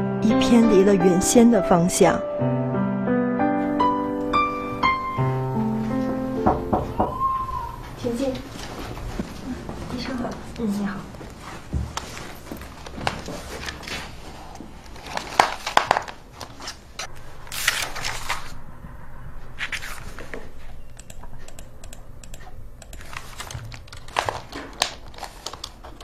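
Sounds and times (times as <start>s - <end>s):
sharp clicks: 20.9s - 24.2s
rustling: 23.0s - 26.0s.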